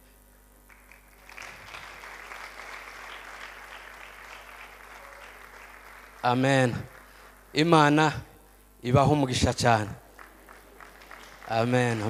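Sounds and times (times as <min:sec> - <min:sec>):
crowd clapping and applauding: 0:00.7 - 0:08.1, 0:10.0 - 0:12.0.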